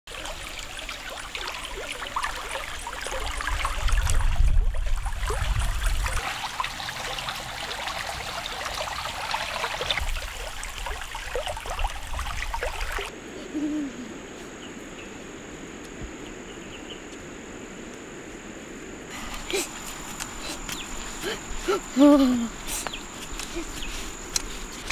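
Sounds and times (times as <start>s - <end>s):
stream water trickling: 0.1s - 13.2s.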